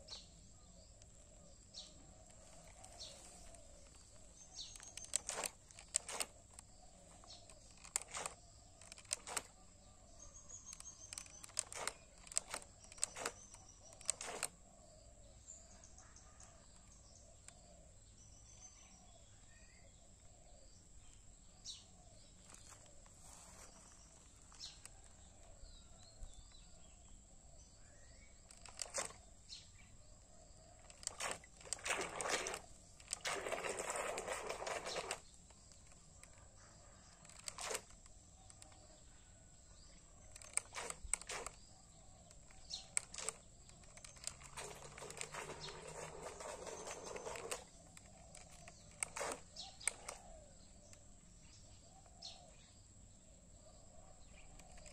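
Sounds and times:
sharp clicks: 1.9 - 14.6, 28.4 - 29.3, 30.8 - 39.0, 39.8 - 51.2.

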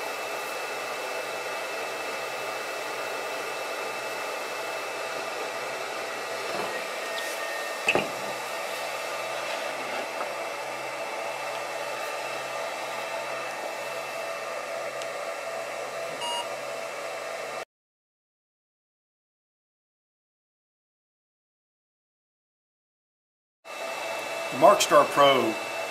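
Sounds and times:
fan-like whir with tones: 0.0 - 17.7, 23.7 - 25.9.

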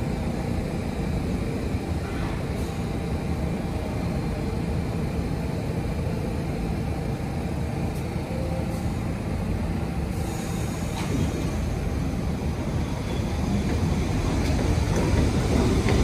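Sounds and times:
subway train rumble: 0.0 - 16.0.

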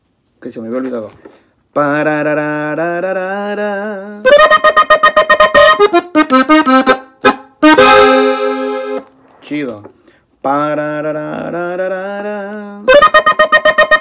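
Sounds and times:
button accordion playing: 4.2 - 9.1, 12.9 - 14.0.

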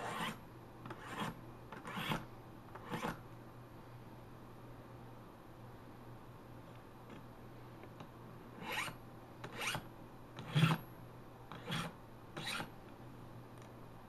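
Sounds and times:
scissors rasping through sharpener: 0.0 - 2.2, 2.8 - 3.2, 8.6 - 9.8, 11.5 - 12.7.

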